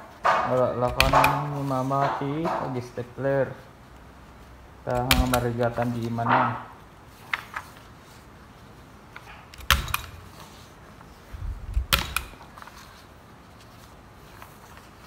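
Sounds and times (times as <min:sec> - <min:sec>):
stapler clacking shut: 0:00.8 - 0:01.5, 0:04.9 - 0:05.6, 0:09.5 - 0:10.4, 0:11.7 - 0:12.5.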